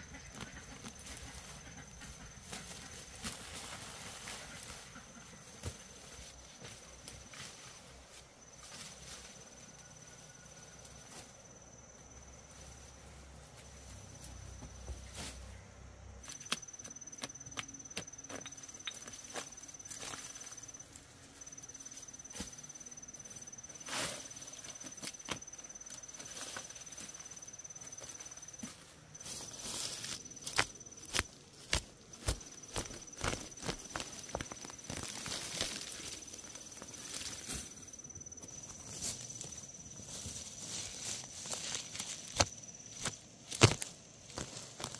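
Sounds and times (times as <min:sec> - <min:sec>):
rustling and snapping of plants: 0:16.2 - 0:20.5, 0:29.6 - 0:37.8, 0:38.5 - 0:44.9
insect trilling: 0:16.2 - 0:44.9.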